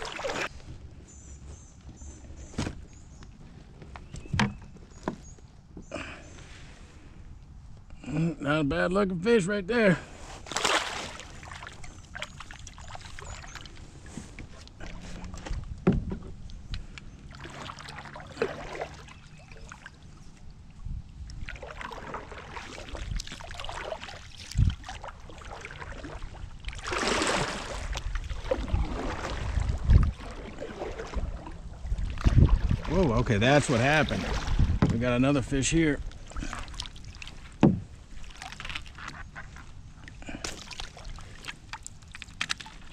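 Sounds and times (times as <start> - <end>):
paddle swishing through water: 0.0 - 5.4, 10.0 - 35.4, 36.0 - 42.9
knocks on kayak: 37.6 - 37.9.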